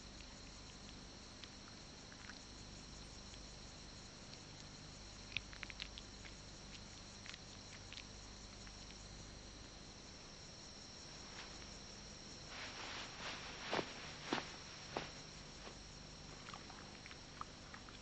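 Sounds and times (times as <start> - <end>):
steady hiss: 0.0 - 18.0
wings rustling: 12.4 - 15.8.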